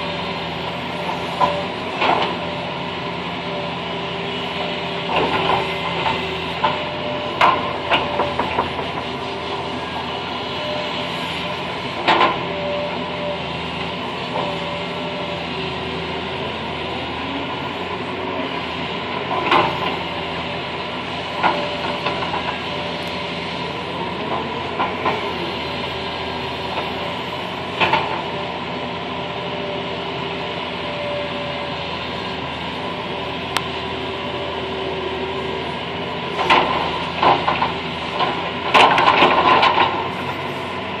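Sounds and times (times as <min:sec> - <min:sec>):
excavator engine and hydraulics: 0:00.0 - 0:41.0.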